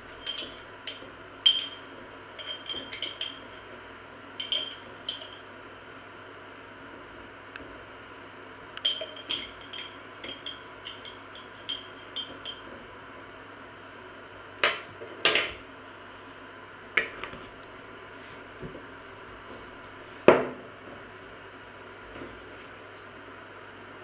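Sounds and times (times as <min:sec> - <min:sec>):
teaspoon clinking against glass: 0:04.4 - 0:05.4, 0:08.8 - 0:12.6.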